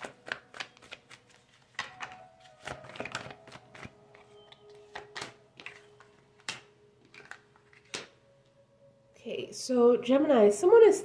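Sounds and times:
cards shuffled and dealt: 0.0s - 8.2s.

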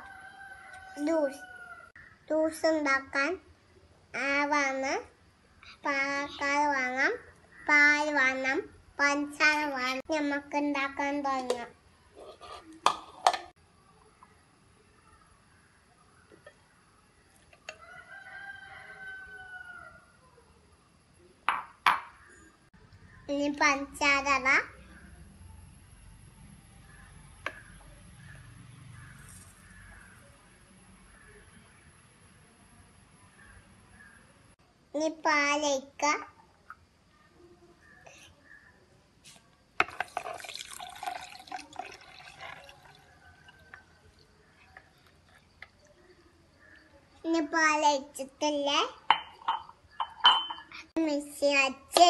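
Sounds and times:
rooster crowing: 0.0s - 2.0s, 17.7s - 20.0s
milk pouring and splashing: 39.8s - 46.0s.

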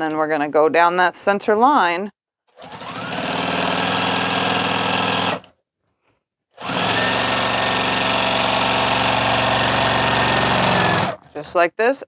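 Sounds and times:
sewing machine stitching: 2.5s - 5.6s, 6.6s - 11.6s.

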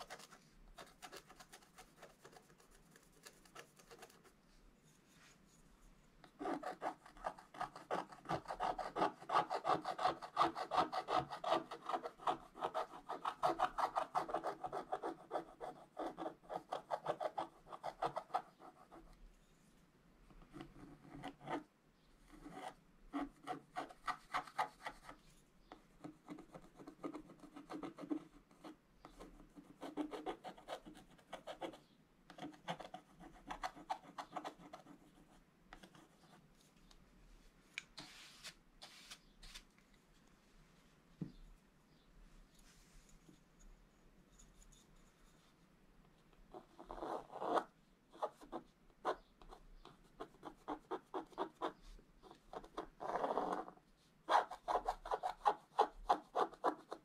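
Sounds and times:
stylus scraping paper: 38.0s - 39.7s.

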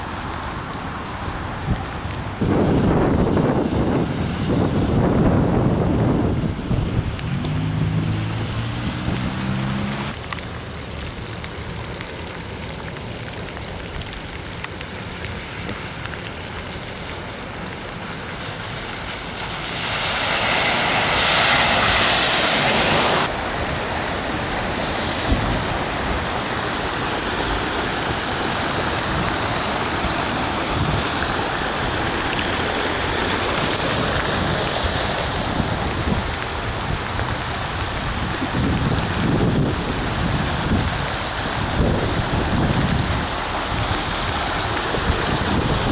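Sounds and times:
heavy rain on flooded pavement: 0.0s - 45.9s
wind buffeting microphone: 1.6s - 10.2s, 20.7s - 45.9s.

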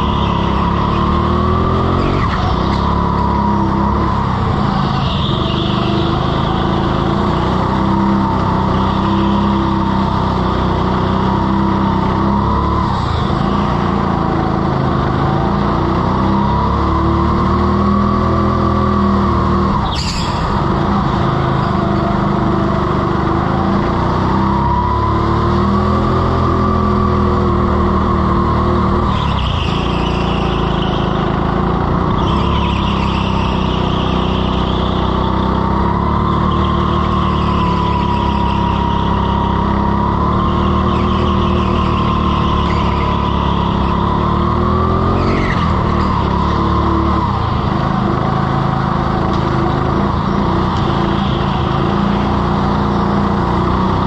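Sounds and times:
go-kart engine running hard: 0.0s - 54.0s
tyres squealing: 28.0s - 49.0s.

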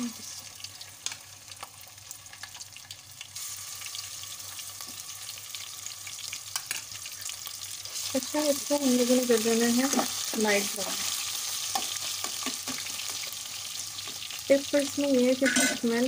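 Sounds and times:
garlic sizzling in hot oil: 0.0s - 16.0s.

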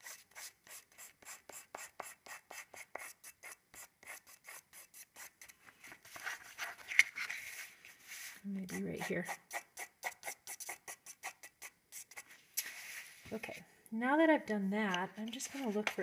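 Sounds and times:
pastel stick rubbing on paper: 0.0s - 5.5s, 7.4s - 13.6s.

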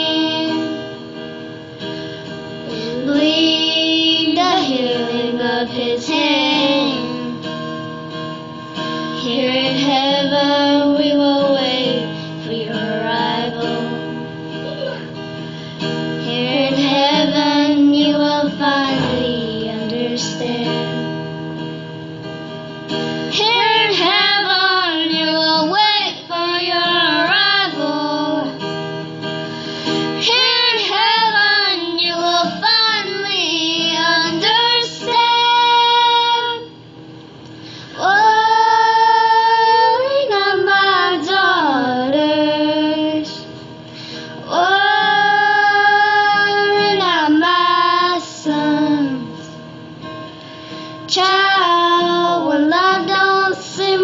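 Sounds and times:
woman singing a slow ballad: 0.0s - 1.0s, 2.6s - 7.6s, 9.1s - 15.0s, 15.8s - 21.2s, 23.3s - 28.7s, 29.8s - 36.7s, 37.8s - 49.6s, 51.0s - 54.0s
acoustic guitar: 0.0s - 54.0s.

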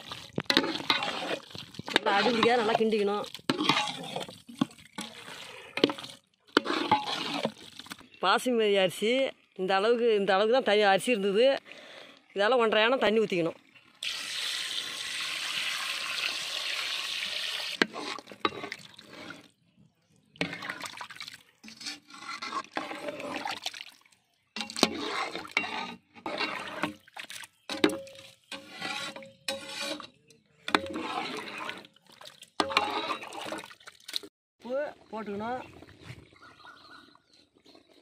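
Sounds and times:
metal ladle stirring liquid: 0.0s - 8.2s, 17.7s - 19.7s, 20.3s - 34.3s
water pouring into metal pot: 0.0s - 9.6s, 13.6s - 19.6s, 20.3s - 30.0s, 30.7s - 34.2s.

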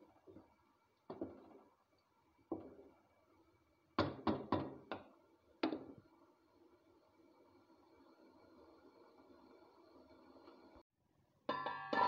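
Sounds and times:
wooden spoon knocking on pot: 1.1s - 1.6s, 2.5s - 2.9s, 4.0s - 5.9s.

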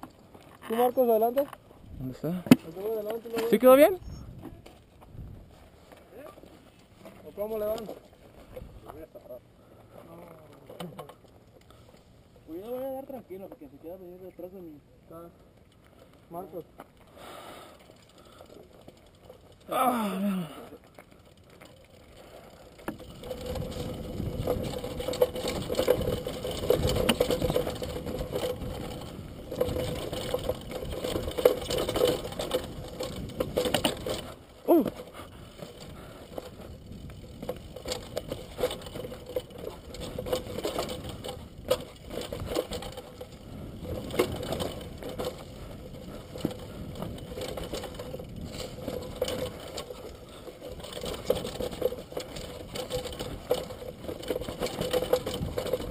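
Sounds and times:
mountain bike rattling: 0.0s - 55.9s
tyres crunching over stones: 17.9s - 55.9s.

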